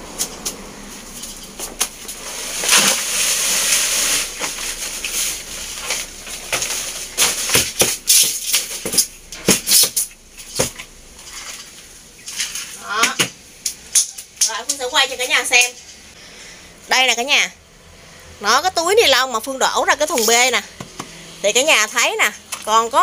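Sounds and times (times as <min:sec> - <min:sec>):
plastic bag crinkling: 0:01.0 - 0:09.3
soil pouring into bucket: 0:01.1 - 0:07.5.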